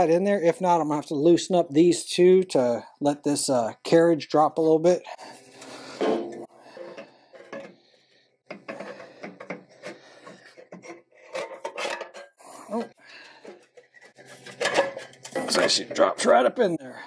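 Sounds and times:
metal muffler scraping and clanking: 0:13.9 - 0:16.1.

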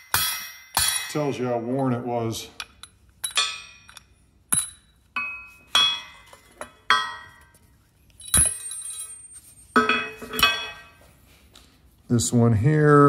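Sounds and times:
metal parts clinking on workbench: 0:08.1 - 0:11.0.

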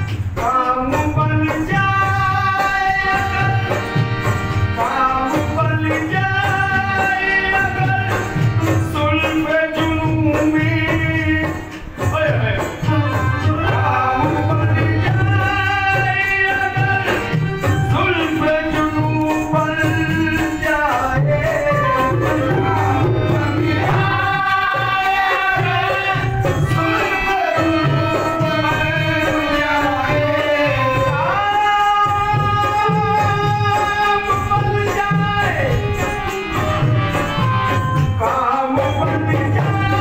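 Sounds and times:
hand drum beat: 0:00.0 - 0:29.2.

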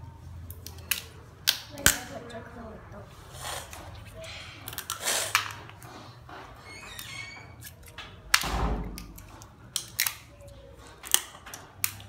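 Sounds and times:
crab shells cracking: 0:07.6 - 0:12.0.

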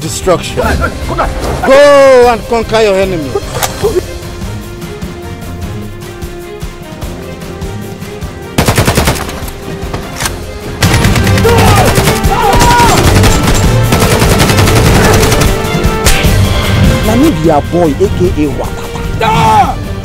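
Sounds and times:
background music: 0:00.0 - 0:20.0
automatic rifle fire: 0:08.6 - 0:09.4.

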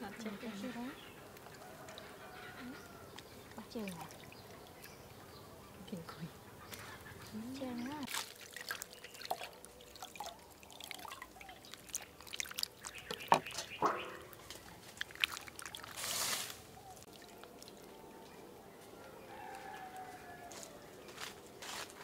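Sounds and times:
wet squelches: 0:00.1 - 0:21.6
water dripping: 0:00.2 - 0:20.2
water splashing in a bowl: 0:01.3 - 0:05.2, 0:06.7 - 0:18.5.

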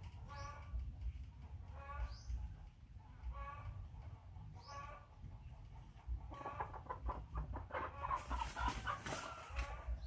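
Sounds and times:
chickens clucking: 0:00.0 - 0:10.0.

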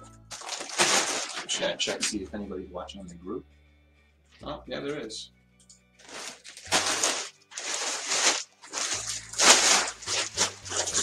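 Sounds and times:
plastic bag crinkling: 0:00.3 - 0:02.1, 0:06.0 - 0:11.0.

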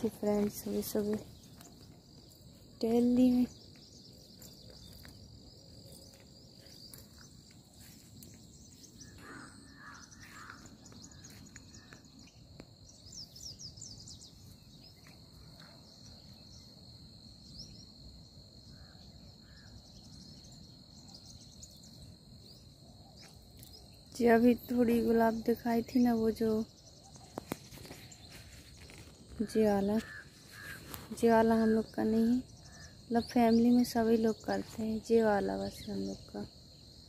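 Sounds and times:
bird chirps: 0:00.0 - 0:16.8
high insect drone: 0:00.0 - 0:37.0.

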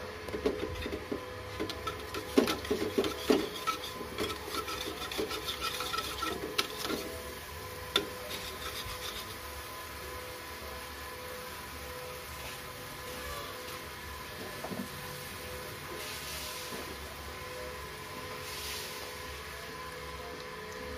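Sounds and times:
metal spatula scraping a pan: 0:00.4 - 0:07.3, 0:07.9 - 0:09.5.

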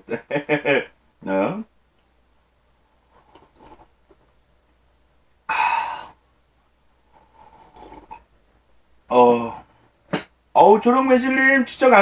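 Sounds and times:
sigh-like breath: 0:05.5 - 0:06.2
man gulping juice: 0:07.4 - 0:08.4.

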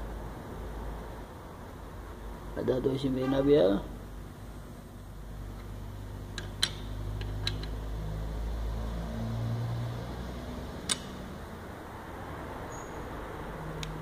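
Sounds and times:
torque wrench clicks: 0:10.8 - 0:11.2.

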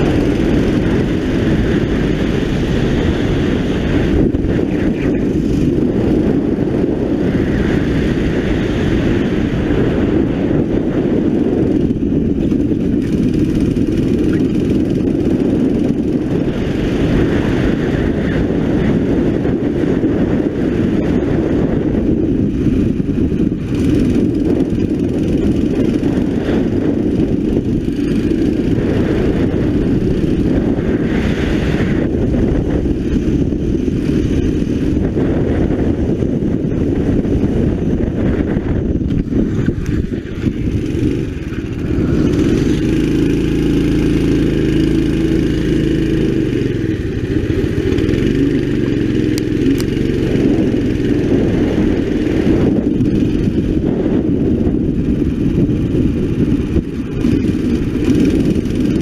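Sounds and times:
go-kart engine running hard: 0:00.0 - 0:59.0.

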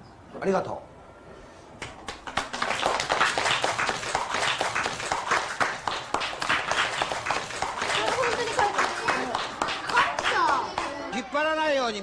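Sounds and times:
children clapping: 0:01.8 - 0:11.1.

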